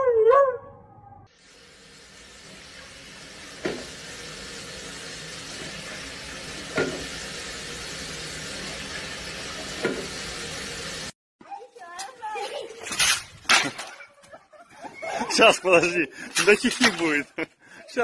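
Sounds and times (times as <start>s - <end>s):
tap water running into sink: 1.5s - 11.1s.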